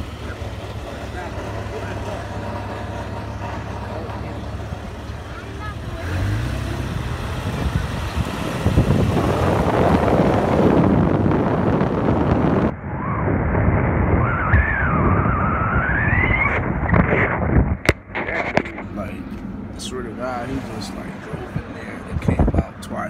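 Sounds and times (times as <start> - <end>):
road noise: 0.0 - 23.0
wind buffeting microphone: 1.4 - 18.8, 20.4 - 23.0
wavering whistle-like tone: 14.2 - 16.6.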